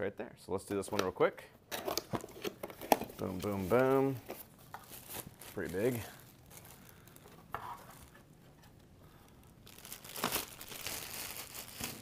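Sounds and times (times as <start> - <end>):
plastic bag crinkling: 2.8 - 8.2, 9.1 - 12.0.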